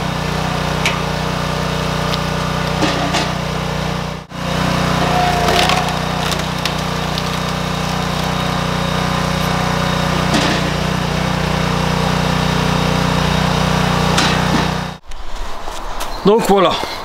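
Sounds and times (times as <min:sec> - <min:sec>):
small engine running steadily: 0:00.0 - 0:15.0
wood cracking as it splits: 0:05.0 - 0:09.6.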